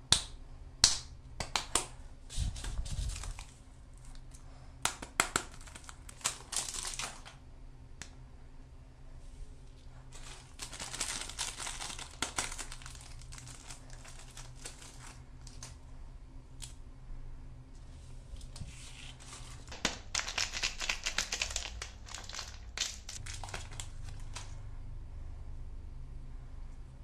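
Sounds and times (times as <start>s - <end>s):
plastic wrappers crinkling and tearing: 2.4s - 4.2s, 5.2s - 7.4s, 10.1s - 15.8s, 18.4s - 24.6s.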